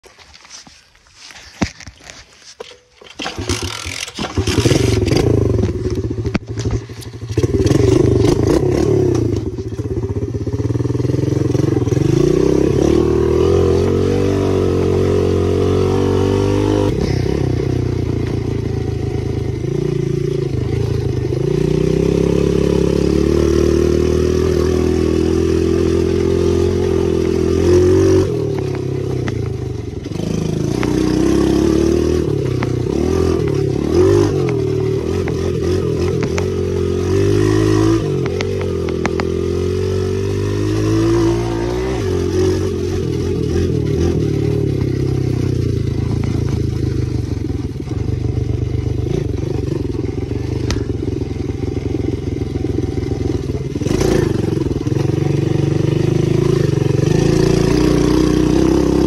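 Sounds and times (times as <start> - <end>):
clatter: 1.6 - 12.1, 28.2 - 39.5, 41.2 - 59.0
dirt bike engine revving: 2.6 - 59.0.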